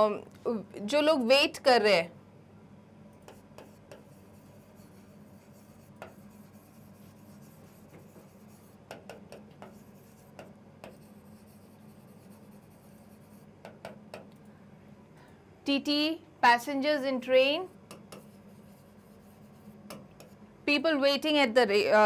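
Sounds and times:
pen writing on a board: 3.2 - 14.3, 17.9 - 20.4.

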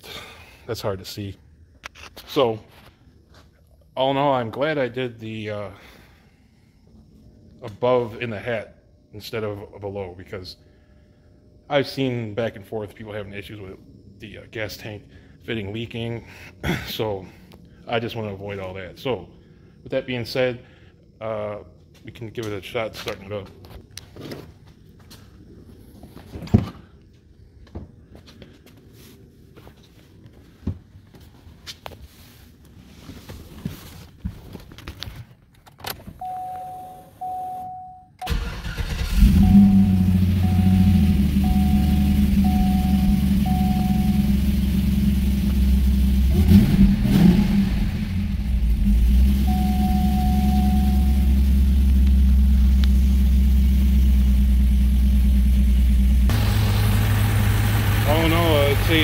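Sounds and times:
car chime tones: 36.2 - 38.4, 39.4 - 44.4, 49.4 - 51.4
car engine cranking and starting: 38.2 - 59.0.

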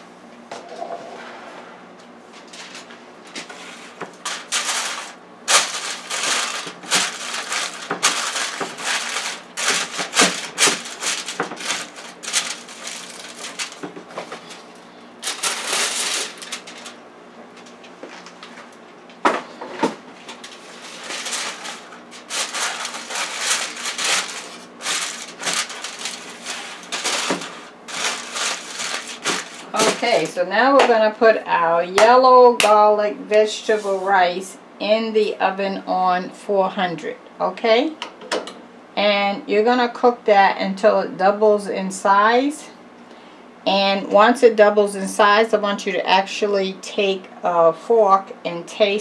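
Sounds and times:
aluminium foil crinkling: 2.5 - 17.0, 20.2 - 30.4.

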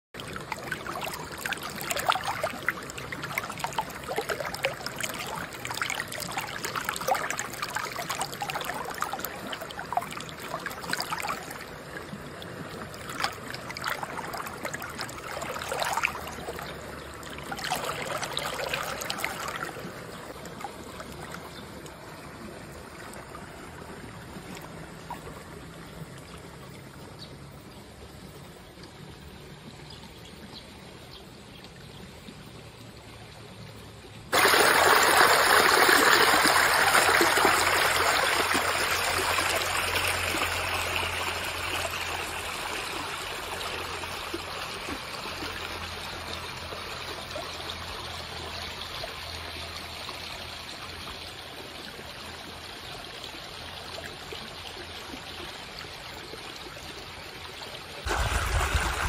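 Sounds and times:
stream trickling: 0.2 - 59.0
hand splashing through water: 58.0 - 59.0.

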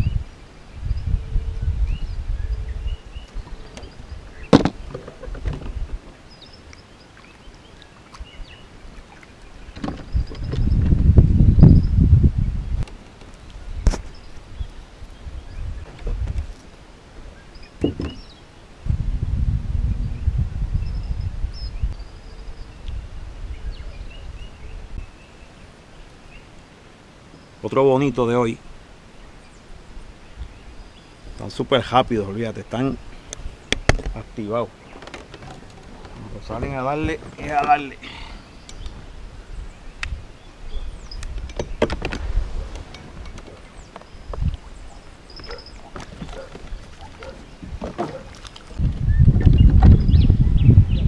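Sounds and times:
birds chirping: 0.0 - 18.7, 19.9 - 51.0
wind rumbling on microphone: 0.0 - 25.6, 28.6 - 51.0
knocks in aluminium boat: 4.5 - 6.0, 17.8 - 18.2, 41.5 - 44.0, 45.4 - 48.6.

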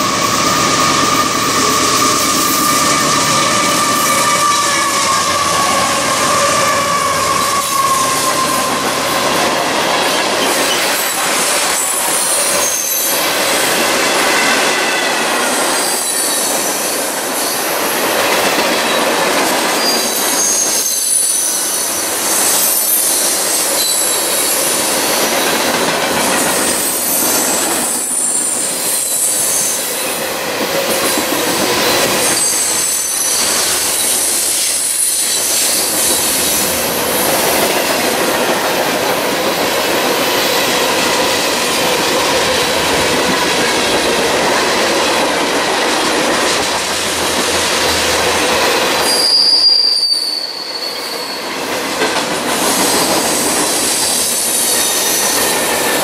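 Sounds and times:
wheel squeal: 0.0 - 9.0, 19.7 - 25.4, 31.8 - 36.7, 49.0 - 51.6
train wheels rumbling on rails: 0.0 - 56.0.

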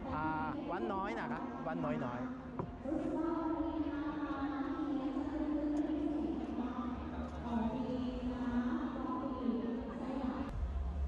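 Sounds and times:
murmur of a crowd: 0.0 - 11.0.

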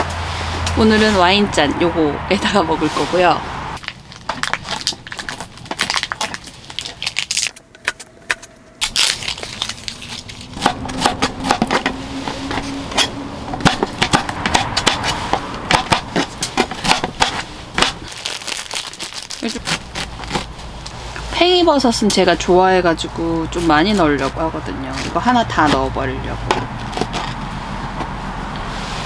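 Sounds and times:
knife cutting squash: 10.0 - 12.8, 13.6 - 18.1, 19.4 - 20.5, 23.6 - 27.4.

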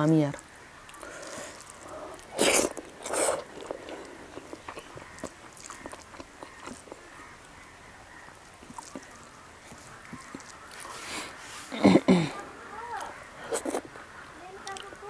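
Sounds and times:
chewing with clicks and smacks: 0.8 - 7.6, 8.2 - 11.0, 13.0 - 15.0
wet mouth noises: 0.9 - 7.1, 8.6 - 12.4, 13.0 - 13.9.

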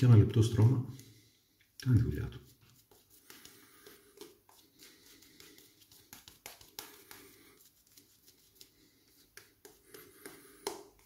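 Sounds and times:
shaving brush scrubbing lather: 1.8 - 10.4.

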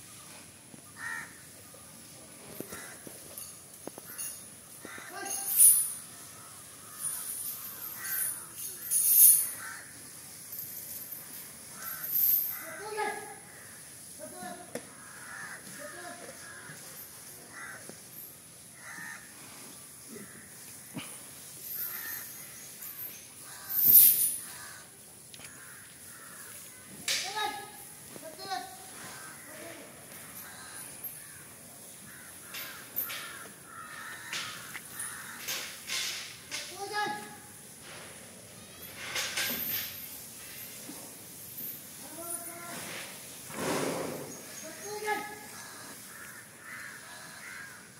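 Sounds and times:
crows cawing: 0.9 - 1.5, 2.6 - 10.1, 11.6 - 14.2, 14.8 - 16.8, 17.5 - 18.1, 18.7 - 19.4, 20.0 - 27.2, 28.8 - 36.1, 44.8 - 47.9.

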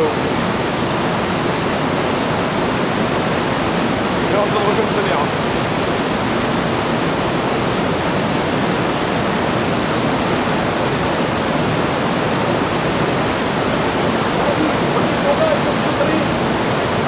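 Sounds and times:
mountain river rushing: 0.0 - 17.0.

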